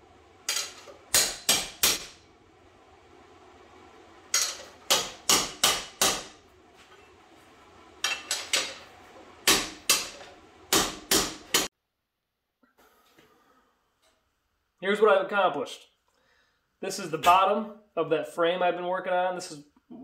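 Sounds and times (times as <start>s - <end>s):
hammer striking steel plate: 0.5s - 2.2s, 4.3s - 6.4s, 9.4s - 11.7s.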